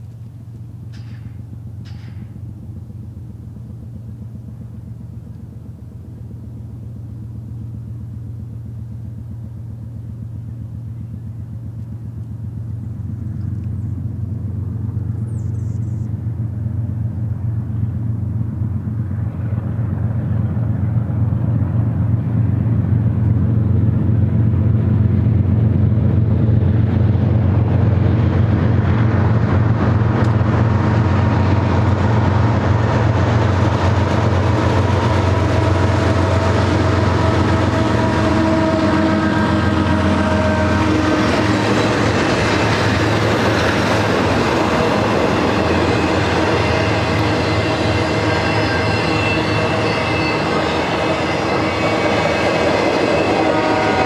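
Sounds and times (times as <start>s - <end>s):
diesel locomotive engine drone: 0.0s - 54.0s
train wheels rumbling on rails: 0.0s - 54.0s
faint squealing tones: 45.4s - 54.0s.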